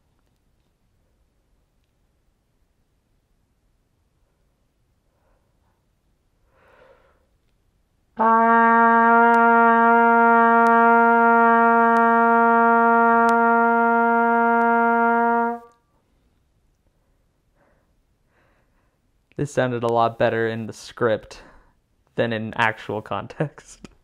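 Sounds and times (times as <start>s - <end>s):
trumpet holding a long note: 8.2s - 15.8s.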